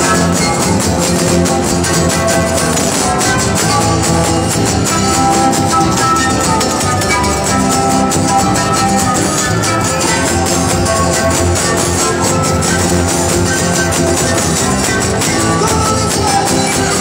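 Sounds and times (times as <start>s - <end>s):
guitar: 0.0s - 17.0s
live band dance music: 0.0s - 17.0s.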